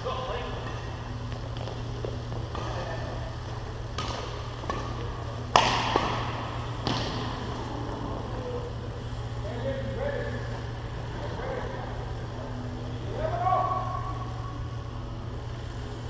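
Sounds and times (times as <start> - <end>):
steady low hum: 0.0 - 16.0
rackets hitting shuttlecock: 1.6 - 3.1, 3.9 - 7.4.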